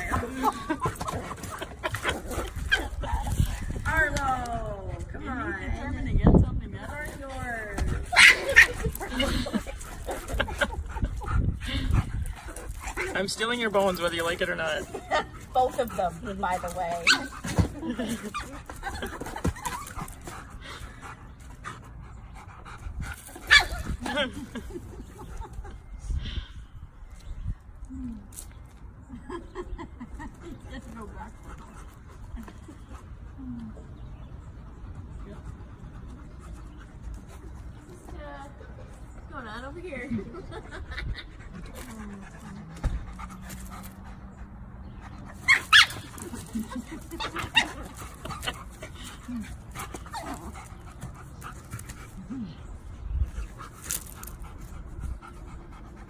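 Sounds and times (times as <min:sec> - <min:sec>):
dog yipping: 0:08.1 - 0:08.8, 0:45.4 - 0:46.2
dog panting: 0:31.0 - 0:39.1, 0:46.0 - 0:56.0.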